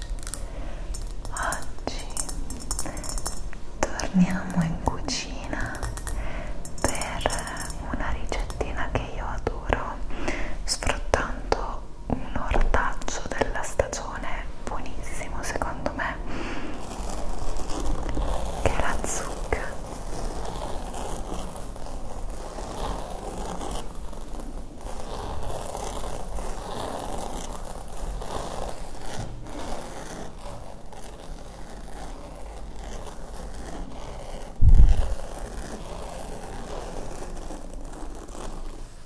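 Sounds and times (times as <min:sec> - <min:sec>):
fingertips scratching squash skin: 0:16.8 - 0:38.9.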